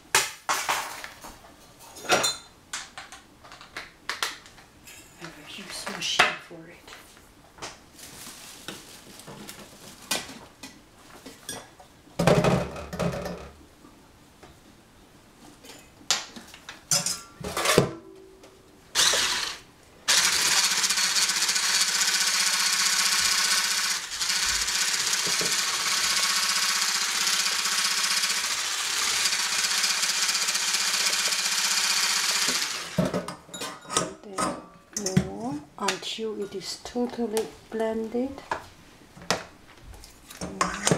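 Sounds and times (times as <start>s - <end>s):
electric hand blender whisking: 19.0s - 33.0s.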